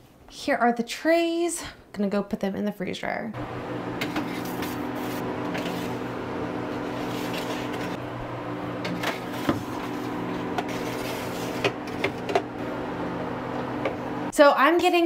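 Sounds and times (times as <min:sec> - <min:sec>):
freeze dryer humming: 0:03.4 - 0:15.0.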